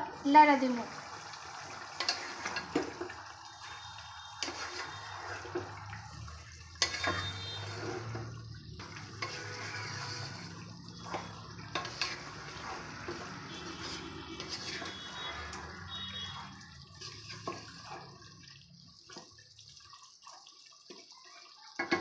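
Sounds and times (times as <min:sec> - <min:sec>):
spatula stirring thick sauce: 0:01.6 - 0:18.3.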